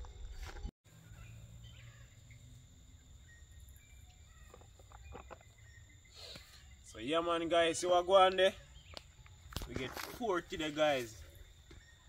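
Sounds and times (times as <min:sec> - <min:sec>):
insect drone: 0:00.0 - 0:08.0
faint bird chirps: 0:00.9 - 0:07.1.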